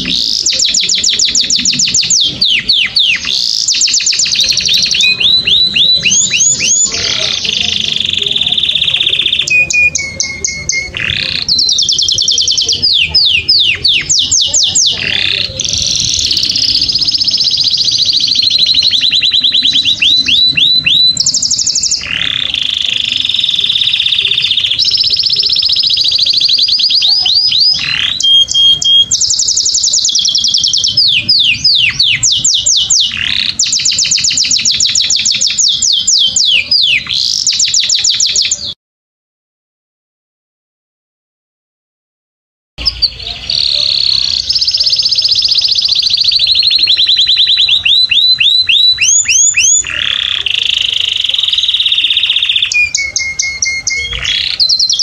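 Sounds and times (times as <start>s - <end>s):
canary singing trills: 0.0s - 38.8s, 42.8s - 55.0s.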